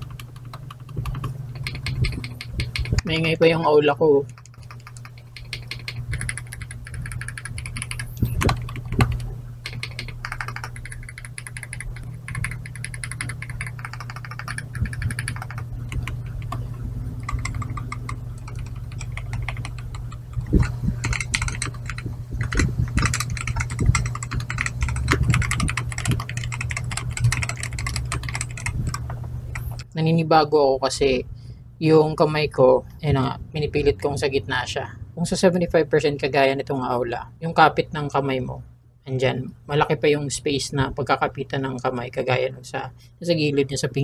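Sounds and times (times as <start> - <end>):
typing on keyboard: 0.0 - 3.0, 4.3 - 29.8.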